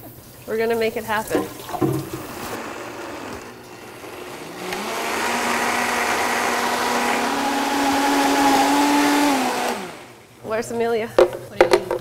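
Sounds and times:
blender running: 2.3s - 10.3s.

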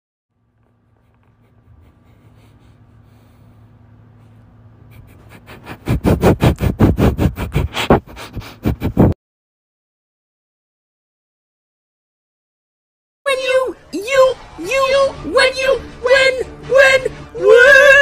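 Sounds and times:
faint low hum: 0.3s - 9.0s
dog sniffing: 0.6s - 9.2s.

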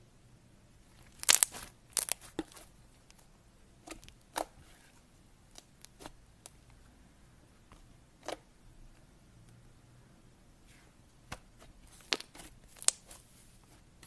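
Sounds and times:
slime sticky clicks and pops: 1.2s - 2.2s.

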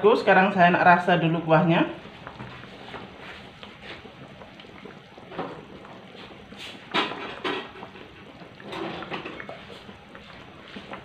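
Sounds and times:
gravy simmering and bubbling: 0.0s - 11.0s
bubbles popping: 2.0s - 6.5s.

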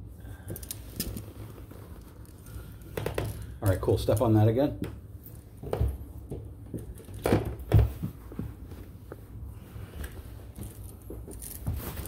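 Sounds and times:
footsteps thumping on carpeted stairs: 5.6s - 8.8s.

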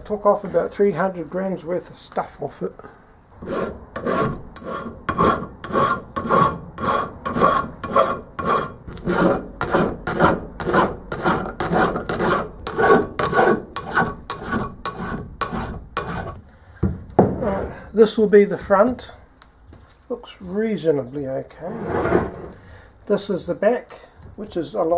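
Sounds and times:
file rasping on metal: 3.4s - 16.4s.

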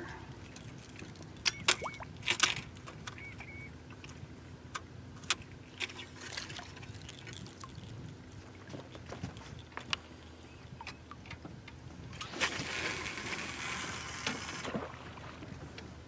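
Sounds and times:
fishing tackle clicks and rattles: 0.5s - 3.4s, 4.0s - 10.1s.

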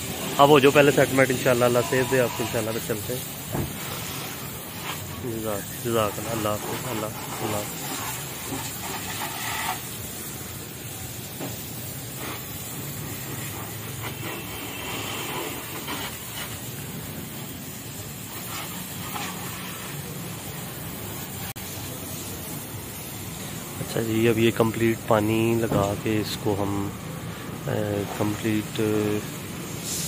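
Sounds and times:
pressurised water jet hissing: 0.0s - 30.0s.

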